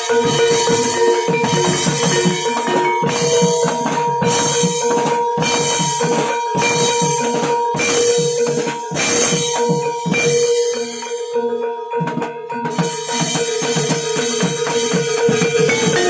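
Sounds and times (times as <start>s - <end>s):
held high tone: 0.0s - 11.6s
fast driving drum pattern: 0.0s - 16.0s.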